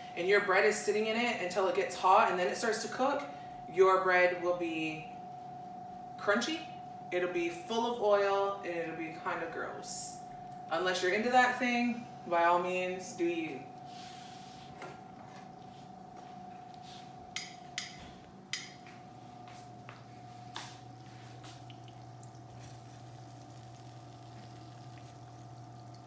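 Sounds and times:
faint steady hum: 0:00.0 - 0:26.0
dough sizzling in hot oil: 0:20.5 - 0:26.0.

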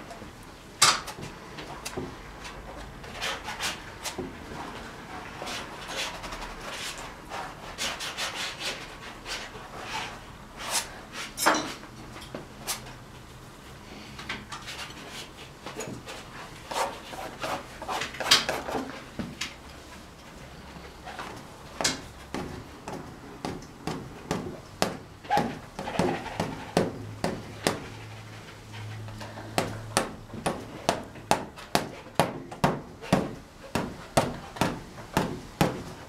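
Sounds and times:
brush scraping on canvas: 0:16.0 - 0:19.1.

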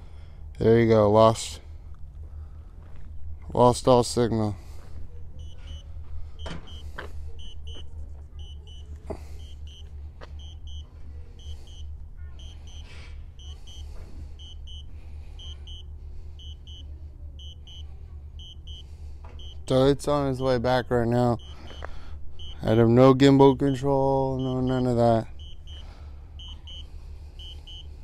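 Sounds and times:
steady low rumble: 0:00.0 - 0:28.0
high electronic warning beeps: 0:05.4 - 0:20.0, 0:21.1 - 0:28.0.

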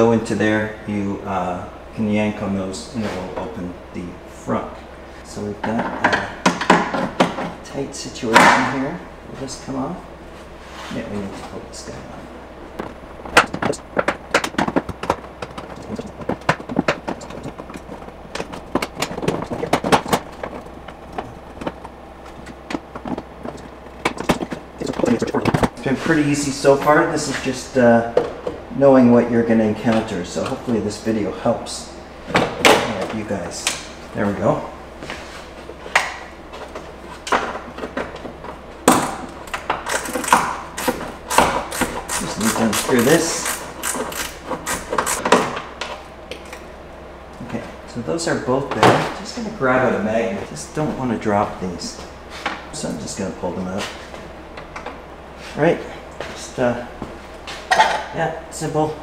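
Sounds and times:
car parts clicking and rattling: 0:05.6 - 0:08.9, 0:12.8 - 0:28.7, 0:32.2 - 0:46.7, 0:50.7 - 0:55.1, 0:57.0 - 0:58.2.

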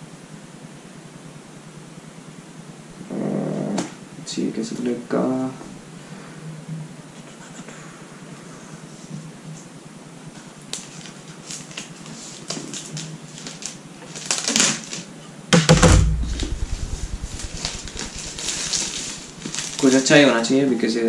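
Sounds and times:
heavy thump and rubbing: 0:15.6 - 0:19.8.

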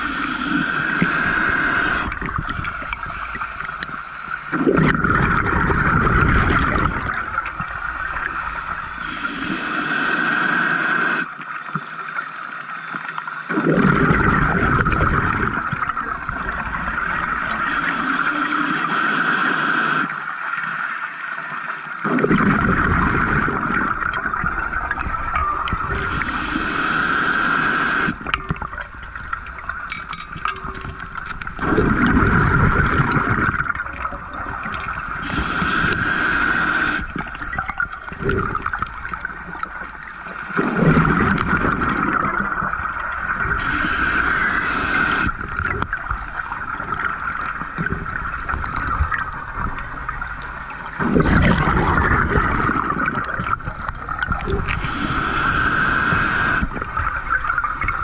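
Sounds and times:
regulator bubbles gurgling: 0:00.0 - 0:20.6, 0:21.9 - 0:58.0
steady high hum: 0:34.3 - 0:57.7.

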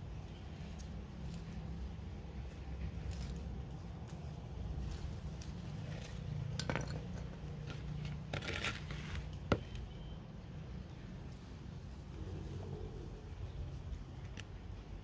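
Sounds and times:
soil crumbling and scraping: 0:00.2 - 0:09.9
soil scraping against plastic pot: 0:00.5 - 0:09.8.

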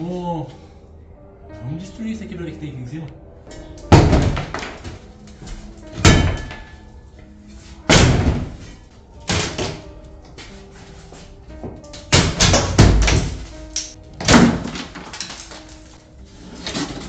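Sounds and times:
background music: 0:00.0 - 0:17.0
shovel bashing wooden boards: 0:03.9 - 0:06.8, 0:07.9 - 0:09.8, 0:11.9 - 0:16.0.

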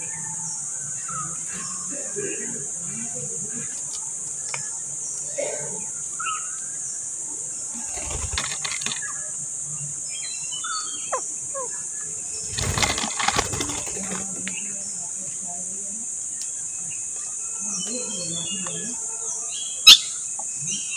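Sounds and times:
high insect chorus: 0:00.0 - 0:20.9
parakeet rustling and clicking: 0:07.9 - 0:09.0, 0:12.5 - 0:14.3.

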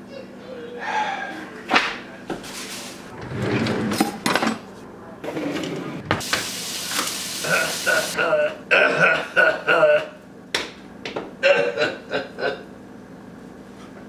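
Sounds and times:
food sizzling: 0:06.2 - 0:08.2.

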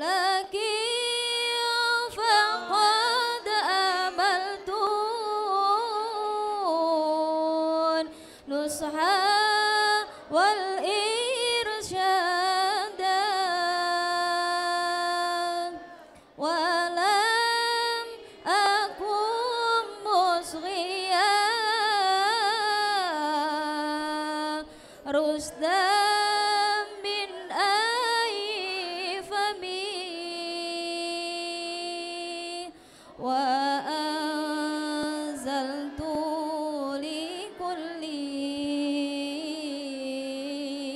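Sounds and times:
choir singing in unison: 0:02.0 - 0:06.9, 0:14.5 - 0:23.6, 0:25.1 - 0:29.6, 0:33.2 - 0:38.4.

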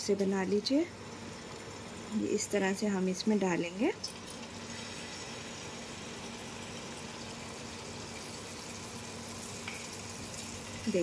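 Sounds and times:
batter sizzling in hot oil: 0:00.0 - 0:11.0.

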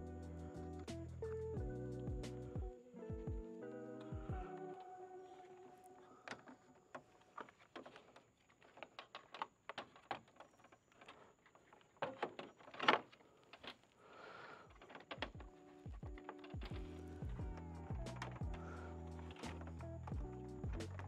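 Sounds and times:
plastic parts clicking and knocking: 0:06.2 - 0:14.0, 0:14.6 - 0:18.6.

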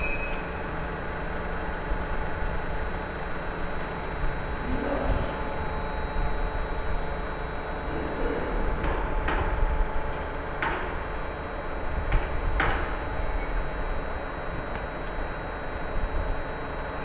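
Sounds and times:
sharp metallic clinks: 0:00.0 - 0:00.6
mixer mechanical hum: 0:00.0 - 0:17.0.

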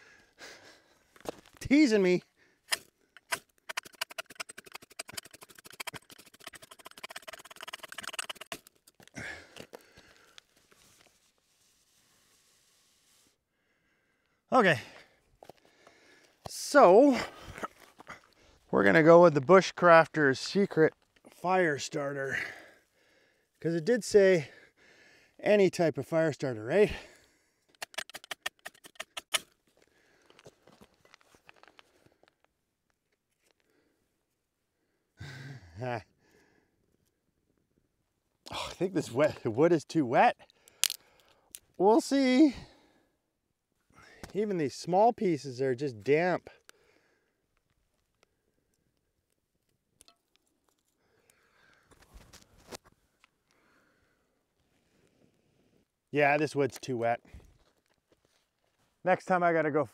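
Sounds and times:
knife scraping ferro rod: 0:03.2 - 0:08.8.

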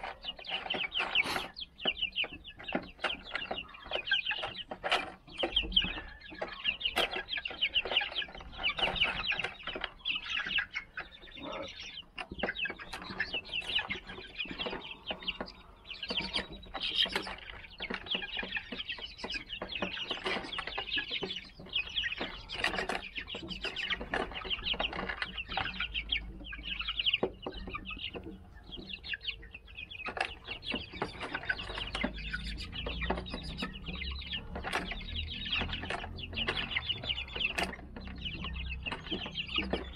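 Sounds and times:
chicks peeping: 0:00.0 - 0:39.9.

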